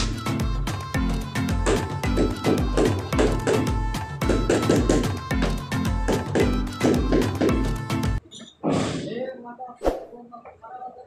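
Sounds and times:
background music with steady beat: 0:00.0 - 0:08.2.

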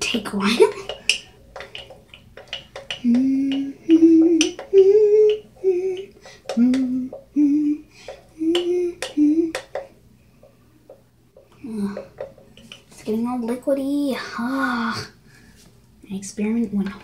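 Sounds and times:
spoon clicking against bowl: 0:00.8 - 0:06.6
girl humming a slow tune: 0:03.0 - 0:09.7.

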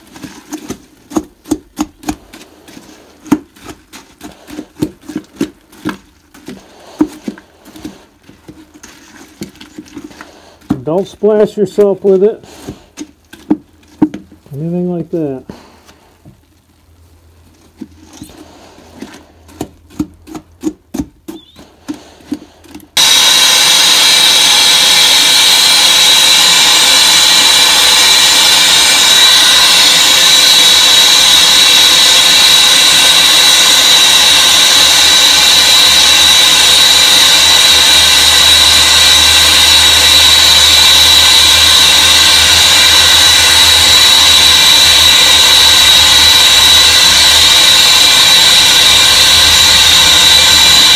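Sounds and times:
machine noise with high whine: 0:23.0 - 0:50.9.

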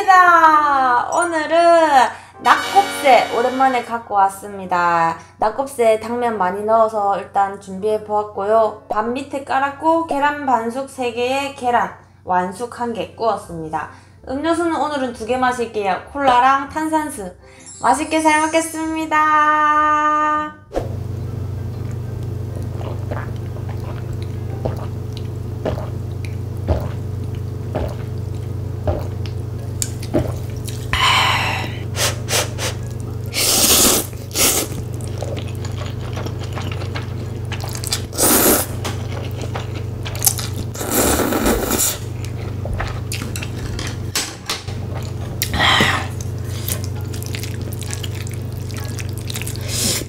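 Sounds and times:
steady low hum: 0:20.8 - 0:50.0
mouth clicks and chewing: 0:21.8 - 0:30.9, 0:33.7 - 0:43.6, 0:46.2 - 0:50.0
slurping noodles: 0:22.6 - 0:24.9, 0:31.5 - 0:42.4, 0:45.5 - 0:50.0.

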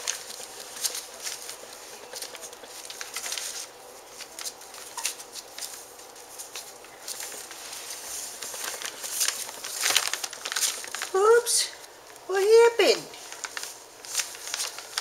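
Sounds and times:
puppy paws scrabbling: 0:00.0 - 0:11.2
newspaper rustling and crinkling: 0:00.0 - 0:12.2, 0:12.8 - 0:15.0.

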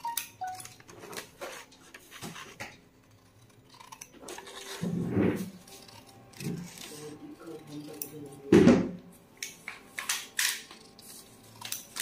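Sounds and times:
scissors snipping paper: 0:00.5 - 0:08.5, 0:10.0 - 0:12.0.

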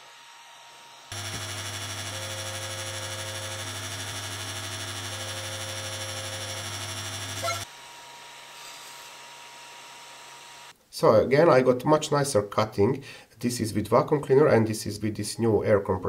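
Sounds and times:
air compressor humming: 0:01.1 - 0:07.8.

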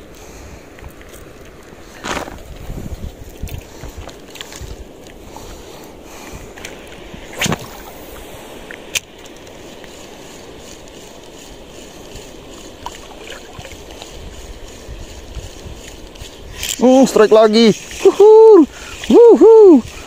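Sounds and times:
water noise: 0:00.0 - 0:20.0
wind: 0:00.0 - 0:20.0
fishing rod swishing: 0:06.6 - 0:16.9.

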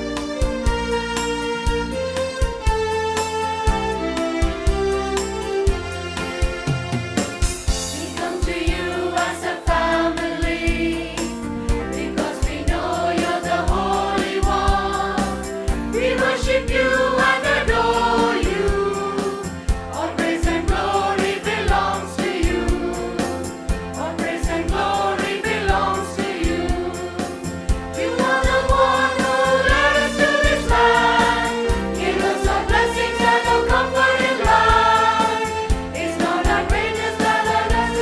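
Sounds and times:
instrumental accompaniment with beat: 0:00.0 - 0:38.0
choir singing: 0:07.9 - 0:38.0.

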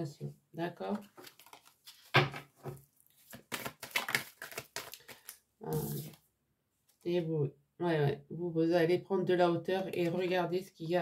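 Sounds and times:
cards being shuffled: 0:01.0 - 0:06.2.

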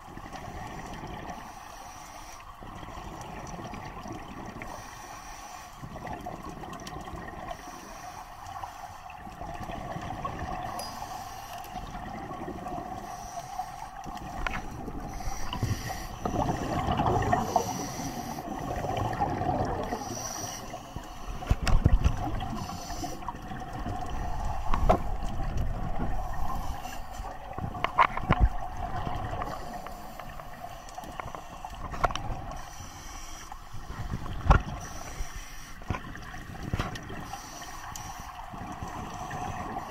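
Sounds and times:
steady underwater hum: 0:00.0 - 0:39.9
scuba regulator bubbles rushing: 0:14.1 - 0:31.1.

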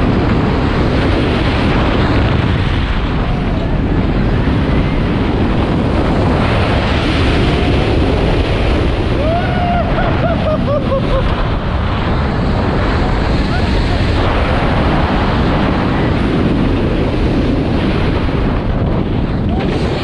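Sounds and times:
roller coaster train running: 0:00.0 - 0:20.0
strong wind on microphone: 0:00.0 - 0:20.0
riders screaming and whooping: 0:07.1 - 0:11.8, 0:12.5 - 0:14.9, 0:19.3 - 0:20.0.

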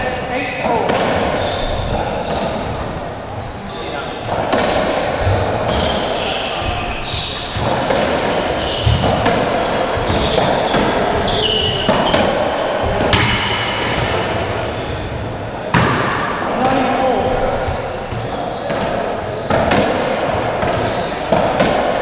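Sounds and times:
shoe squeaks: 0:00.3 - 0:02.5, 0:03.3 - 0:04.4, 0:05.2 - 0:12.3, 0:17.4 - 0:19.6, 0:20.6 - 0:21.4.

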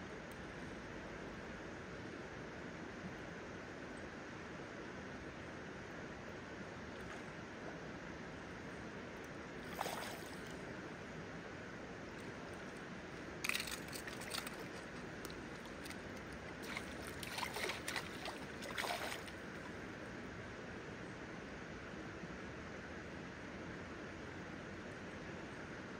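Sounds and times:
shallow river flowing: 0:03.6 - 0:22.3
fish splashing at the surface: 0:09.6 - 0:10.6, 0:13.4 - 0:19.8.

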